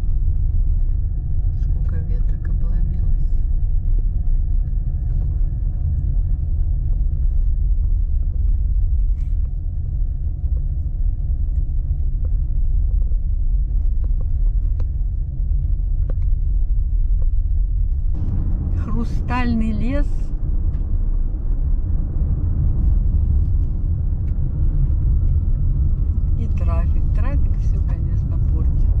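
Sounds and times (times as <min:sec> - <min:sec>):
car interior road and engine rumble: 0:00.0 - 0:29.0.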